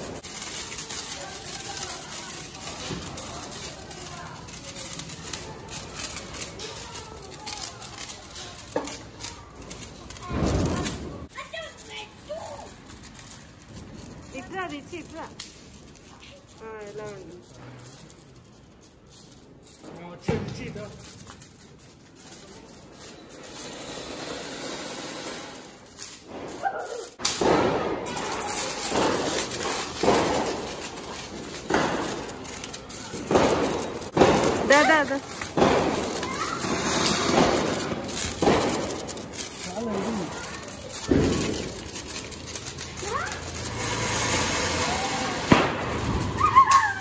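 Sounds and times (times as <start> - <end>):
firework fountain hissing: 0.0 - 47.0
loud firework crackling: 0.0 - 47.0
sharp pop: 27.2 - 28.0.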